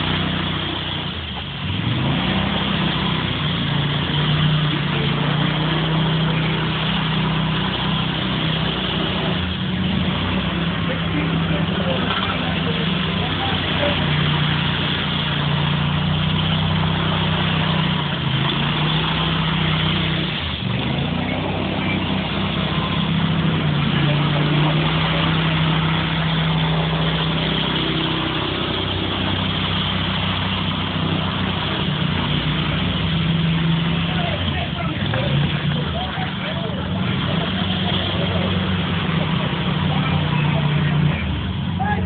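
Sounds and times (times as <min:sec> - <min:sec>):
constant wash of noise: 0:00.0 - 0:42.0
power trowel engine running: 0:00.0 - 0:42.0.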